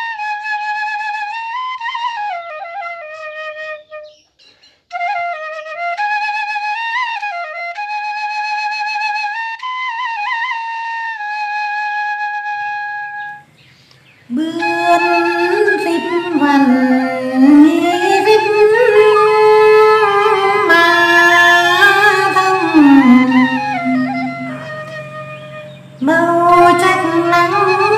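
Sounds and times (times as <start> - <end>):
flute long note: 5.0 - 13.6, 14.3 - 27.9
woman singing folk song: 14.3 - 24.8, 26.0 - 27.9.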